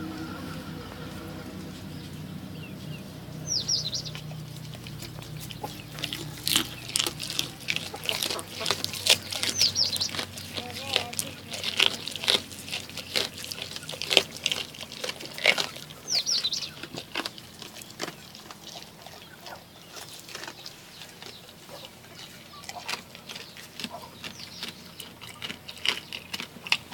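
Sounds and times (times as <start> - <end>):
goat chewing with crunching: 1.0 - 26.9
high bird chirps: 1.9 - 4.3, 9.2 - 10.2, 16.1 - 16.8.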